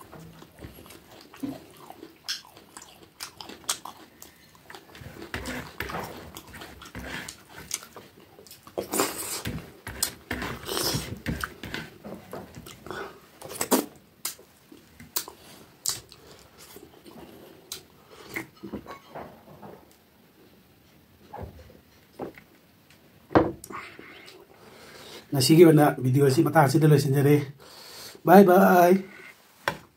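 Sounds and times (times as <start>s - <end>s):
wet chewing and lip smacks: 0.0s - 5.3s, 13.5s - 18.5s.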